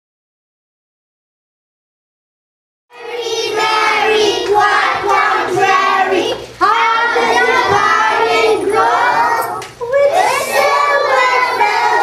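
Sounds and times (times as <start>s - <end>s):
child singing: 2.9s - 12.0s.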